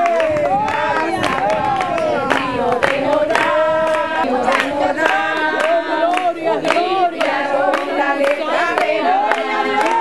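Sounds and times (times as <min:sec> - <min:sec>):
hand claps: 0:00.0 - 0:10.0
group singing a hymn: 0:00.3 - 0:10.0.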